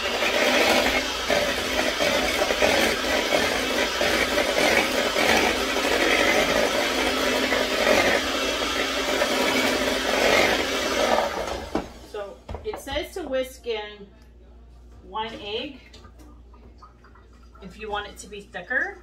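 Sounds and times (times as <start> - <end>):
electric mixer running: 0.0 - 12.3.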